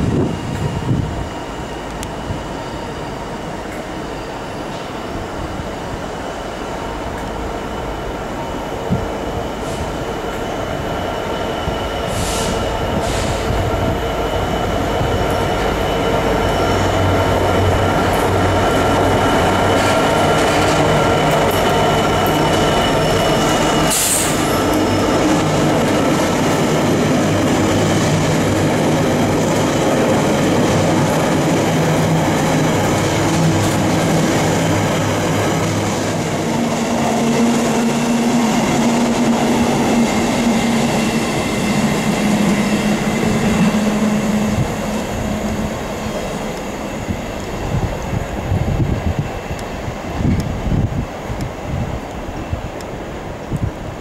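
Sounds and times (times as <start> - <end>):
diesel locomotive engine drone: 0.0 - 54.0
train wagons clattering on rails: 11.6 - 45.0
brief hissing or squealing: 12.1 - 13.5, 23.9 - 24.5.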